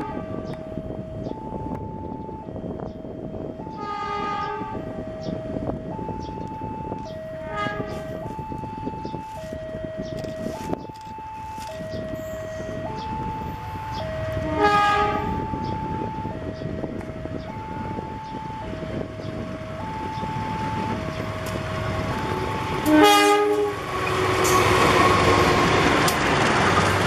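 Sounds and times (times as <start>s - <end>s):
locomotive horn: 0.0s - 0.6s, 3.6s - 4.9s, 7.3s - 8.4s, 13.6s - 16.3s, 20.4s - 25.7s
two-tone warning alarm: 0.0s - 25.8s
train rumbling: 0.0s - 27.0s.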